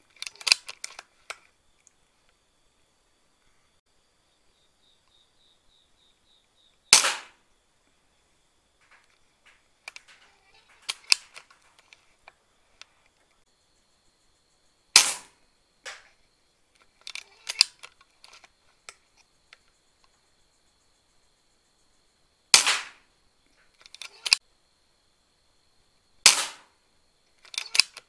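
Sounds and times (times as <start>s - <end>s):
small clicks and knocks: 0.0s - 2.4s, 8.8s - 13.4s, 15.0s - 16.2s, 16.8s - 20.2s, 22.8s - 24.4s, 27.3s - 28.0s
air rifle shot crack: 6.9s - 7.4s, 15.0s - 16.0s, 22.5s - 23.0s, 26.3s - 26.7s.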